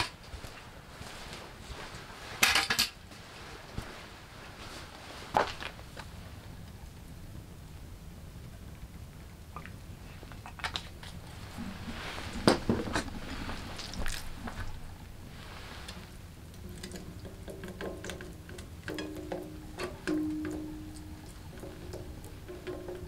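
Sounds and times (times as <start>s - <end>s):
raw meat pressed into pan: 16.5s - 23.0s.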